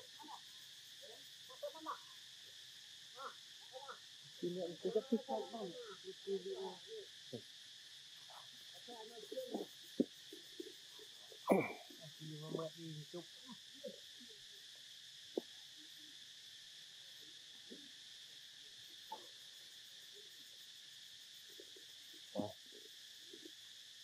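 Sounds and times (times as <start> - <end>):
insects buzzing: 0.0 - 24.0
low vocal sounds: 11.5 - 11.9.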